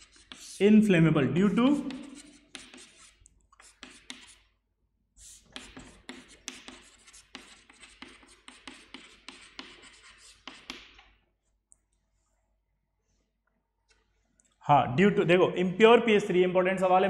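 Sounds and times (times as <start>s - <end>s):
chalk taps: 0.0s - 0.6s, 1.5s - 4.5s, 5.2s - 11.2s
chalk scratching on chalkboard: 0.0s - 0.9s, 1.5s - 4.5s, 5.2s - 11.2s.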